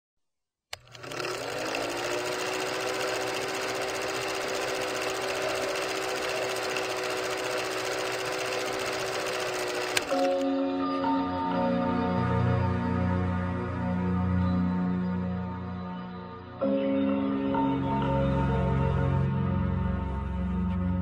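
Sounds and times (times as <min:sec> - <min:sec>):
film projector motor clattering: 0:00.7 - 0:10.4.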